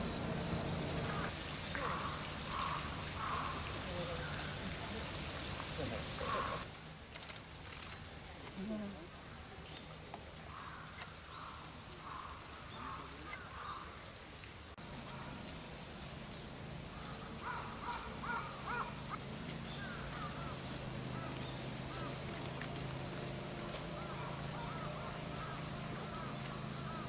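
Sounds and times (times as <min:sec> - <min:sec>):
steady low hum: 0:00.0 - 0:03.9.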